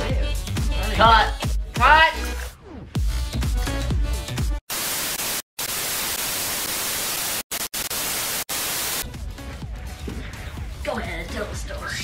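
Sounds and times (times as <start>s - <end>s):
tv static hiss: 4.7s - 9.0s.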